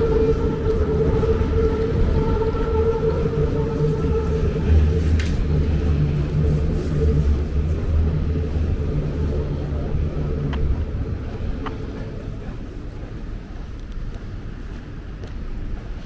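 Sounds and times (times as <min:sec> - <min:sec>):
motor vehicle engine rumble: 0:00.0 - 0:16.0.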